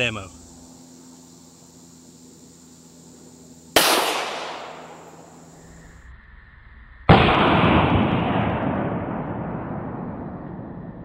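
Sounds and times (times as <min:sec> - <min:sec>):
pistol shots echoing: 0:03.8 - 0:05.0.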